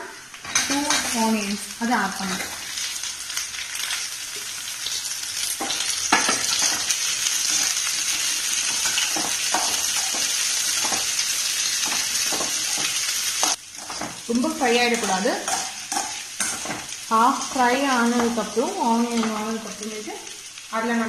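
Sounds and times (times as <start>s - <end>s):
vegetables sizzling in oil: 0.0s - 21.0s
metal spoon scraping pan: 14.9s - 17.6s.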